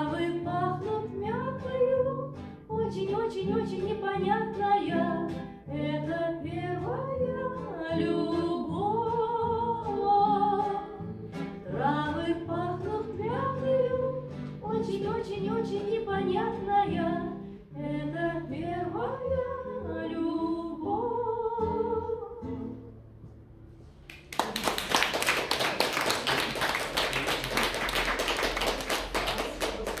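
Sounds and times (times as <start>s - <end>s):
woman singing with acoustic guitar: 0.0s - 23.3s
audience applause: 24.1s - 30.0s.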